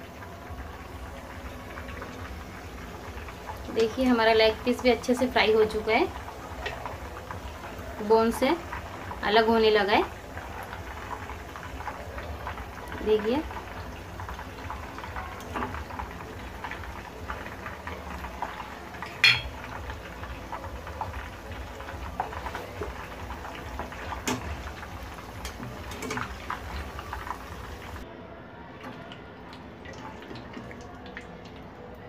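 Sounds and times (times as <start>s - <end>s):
oil bubbling and sizzling: 0.0s - 28.0s, 28.8s - 32.0s
metal utensils knocking on pan: 19.0s - 19.7s, 25.4s - 26.7s.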